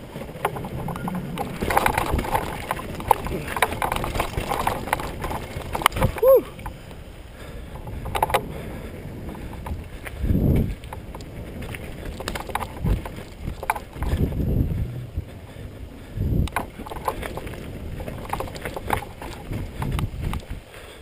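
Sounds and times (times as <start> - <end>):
bike rattling and clattering: 0.0 - 21.0
bike tyres rumbling over dirt: 0.0 - 21.0
wind buffeting microphone: 0.0 - 21.0
heavy thumps over bumps: 7.7 - 20.6.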